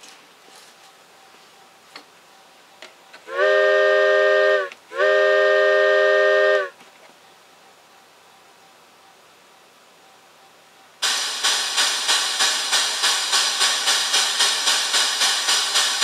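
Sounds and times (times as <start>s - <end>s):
chime steam whistle blasts: 3.3s - 6.8s.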